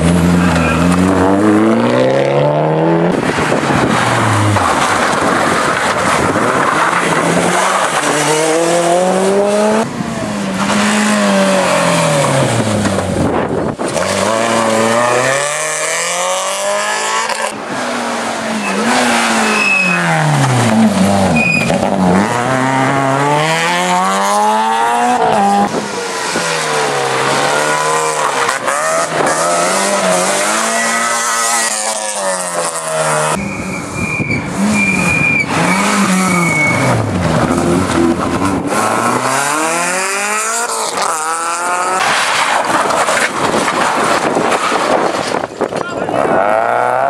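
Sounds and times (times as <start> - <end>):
rally car engines revving: 0.0 - 47.0
short high squeals: 18.6 - 20.1.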